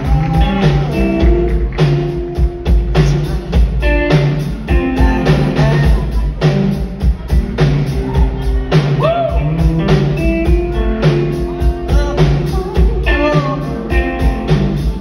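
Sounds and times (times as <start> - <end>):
bass guitar: 0.0 - 15.0
drum kit beat: 0.0 - 15.0.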